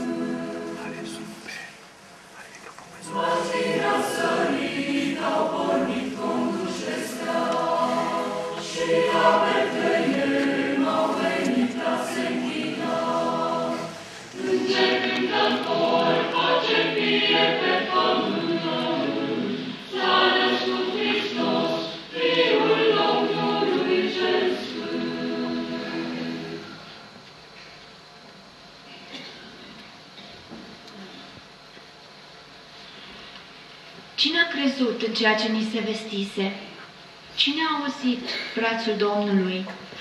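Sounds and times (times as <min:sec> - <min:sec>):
mixed choir singing a carol: 0:00.0 - 0:01.6, 0:03.0 - 0:27.0.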